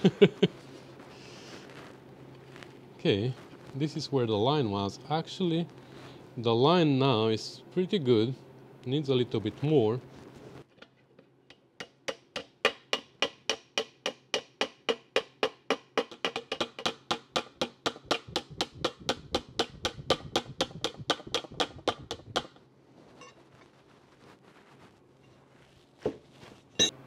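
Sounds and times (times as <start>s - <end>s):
hammer tapping on metal: 11.5s - 22.6s.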